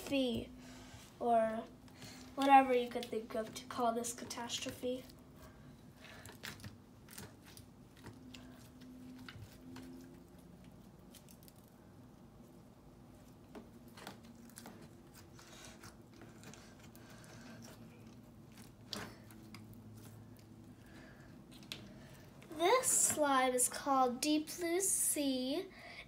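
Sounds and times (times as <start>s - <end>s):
slime squishing and crackling: 2.4s - 12.4s, 13.0s - 20.7s.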